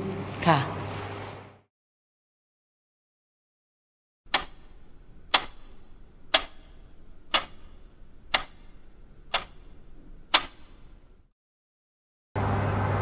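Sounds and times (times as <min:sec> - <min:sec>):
clock ticking: 0:04.3 - 0:11.0.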